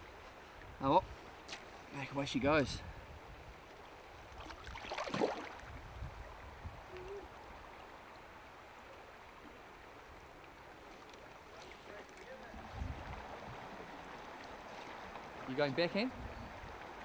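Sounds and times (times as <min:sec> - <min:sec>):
river flowing over stones: 0:03.6 - 0:17.0
fish splashing in water: 0:04.4 - 0:05.7.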